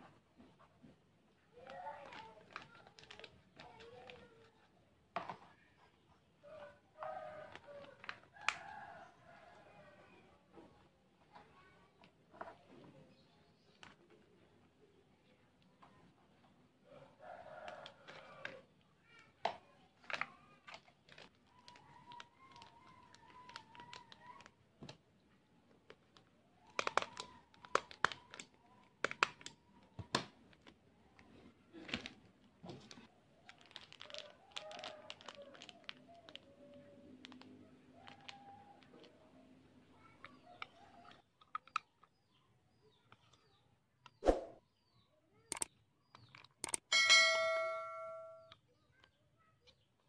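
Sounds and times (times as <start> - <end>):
plastic bag crinkling: 1.6 - 4.3, 20.0 - 24.5, 25.9 - 29.4, 31.7 - 39.1
metal spoon clicking on plastic: 26.6 - 29.6, 45.5 - 46.9.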